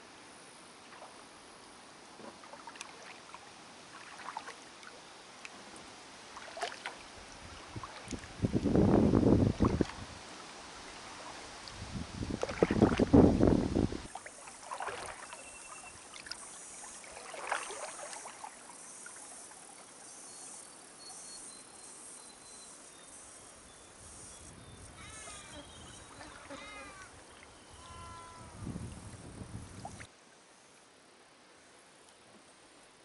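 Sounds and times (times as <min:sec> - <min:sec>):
paddle strokes in water: 0:00.8 - 0:20.0, 0:25.2 - 0:27.9
bird calling: 0:24.2 - 0:28.6.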